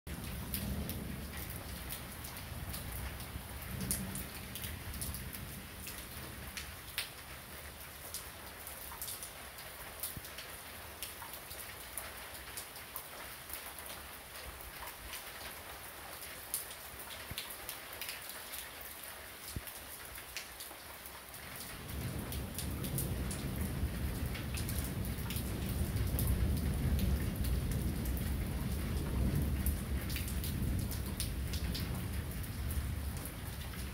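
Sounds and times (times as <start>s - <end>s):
heavy rain on hard surface: 0.1s - 33.9s
thunder rumbling: 21.8s - 33.9s.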